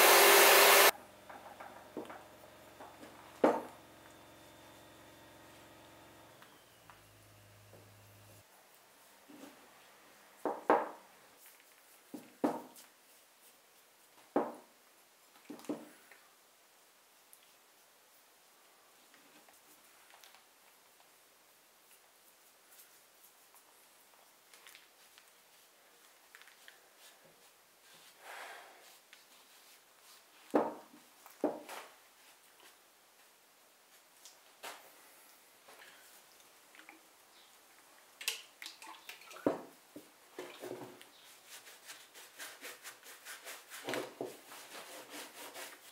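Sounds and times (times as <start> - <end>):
soft rubbing on wood: 28.8 - 30.5.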